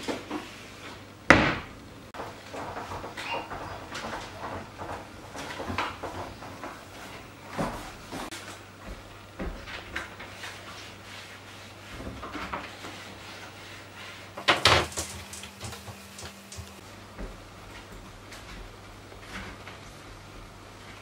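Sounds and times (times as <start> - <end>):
cloth wiping surfaces: 10.1 - 14.4.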